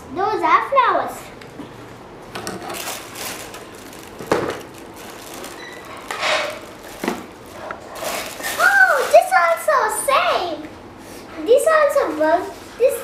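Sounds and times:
tissue paper rustling: 2.8 - 9.7.

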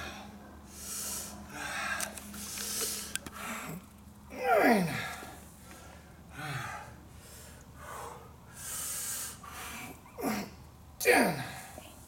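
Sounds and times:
man breathing hard: 0.0 - 3.8, 4.8 - 10.5
man groaning exhale: 10.2 - 11.8.

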